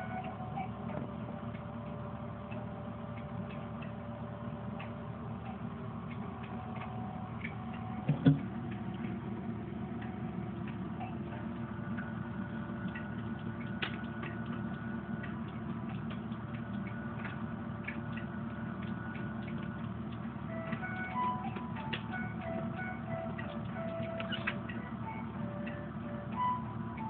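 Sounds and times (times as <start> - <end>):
steady low hum: 0.0 - 27.0
short thump: 8.1 - 8.5.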